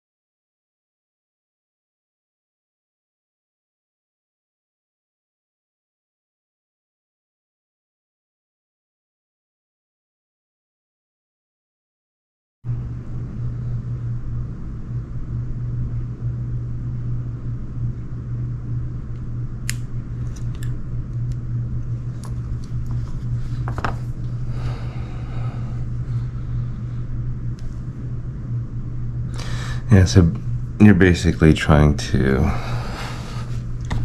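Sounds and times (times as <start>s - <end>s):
steady low hum: 12.7s - 34.0s.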